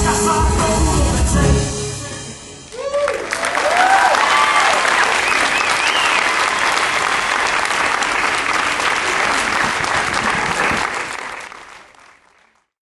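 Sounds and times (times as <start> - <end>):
audience applauding: 2.7 - 12.7.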